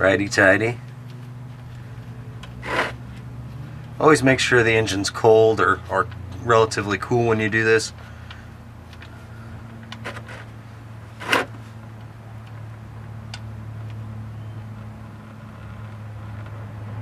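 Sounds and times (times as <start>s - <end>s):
low background hum: 0.0s - 17.0s
sharp metal scrape: 2.6s - 3.0s, 10.0s - 10.5s, 11.1s - 11.7s.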